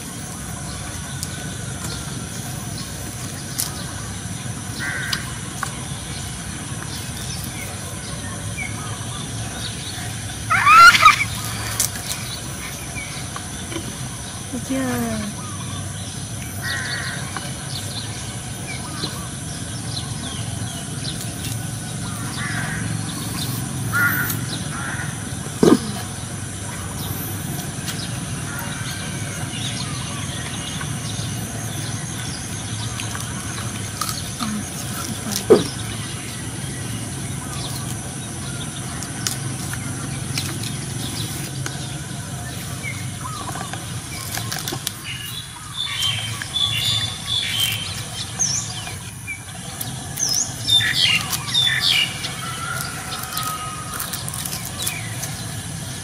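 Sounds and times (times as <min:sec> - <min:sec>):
birds calling: 0:00.0 - 0:56.0
loud downward-sliding calls: 0:10.1 - 0:12.5.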